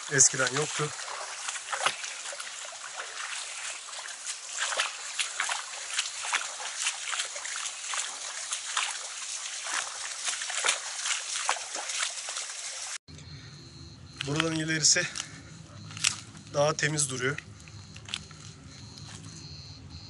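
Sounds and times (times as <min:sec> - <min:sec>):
footsteps crunching on stones: 0:00.0 - 0:12.9, 0:14.2 - 0:19.4
running water hiss: 0:00.0 - 0:13.0.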